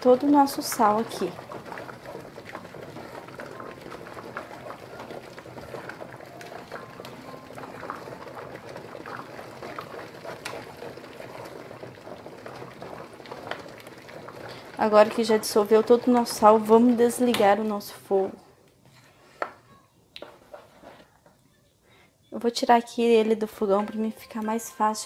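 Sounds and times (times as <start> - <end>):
spoon stirring thick soap in pot: 0.0 - 17.7, 18.9 - 21.4
water bath bubbling: 0.0 - 17.7.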